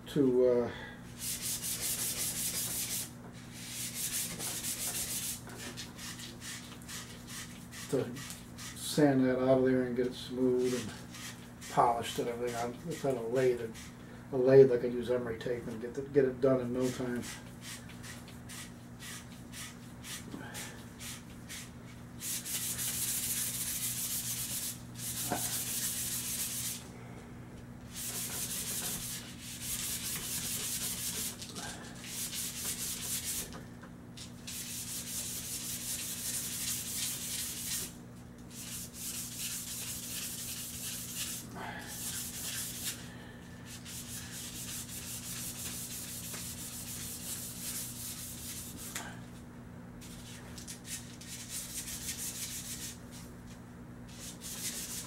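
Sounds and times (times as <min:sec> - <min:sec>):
hand-sanding steel: 0:01.2 - 0:08.9, 0:10.6 - 0:13.9, 0:16.7 - 0:20.3, 0:21.0 - 0:26.8, 0:27.9 - 0:33.5, 0:34.5 - 0:43.0, 0:43.7 - 0:49.0, 0:50.8 - 0:53.0, 0:54.1 - 0:55.0.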